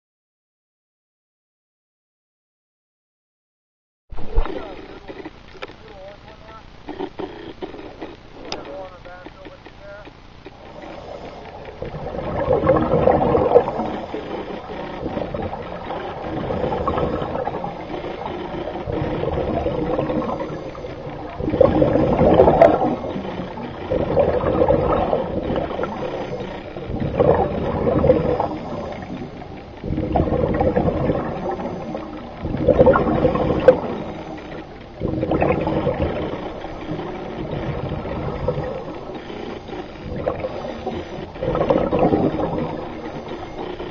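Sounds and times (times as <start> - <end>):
underwater bubbling of exhaled air: 4.1 - 5.3, 10.6 - 43.9.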